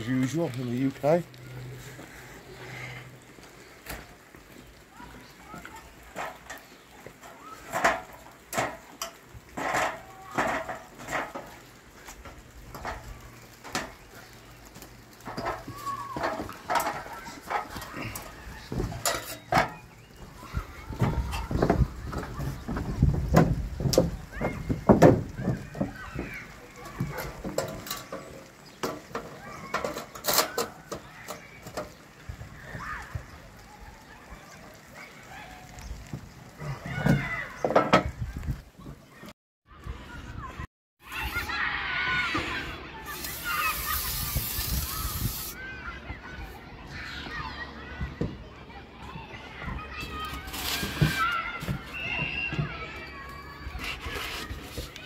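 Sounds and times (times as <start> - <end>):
boots clanking on metal ladder rungs: 6.1 - 13.0, 15.2 - 19.8.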